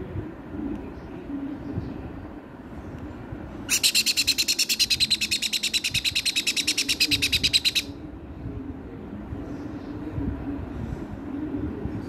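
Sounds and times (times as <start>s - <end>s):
parrot chick rasping begging call: 3.7s - 7.9s.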